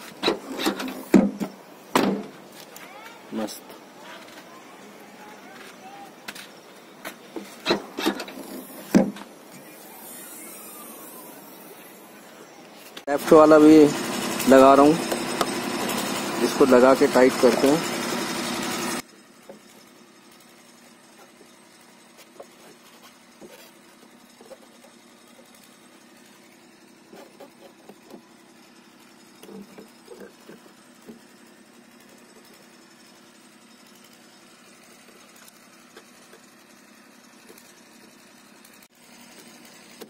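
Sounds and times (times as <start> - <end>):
faint machine hum: 0.0 - 17.9.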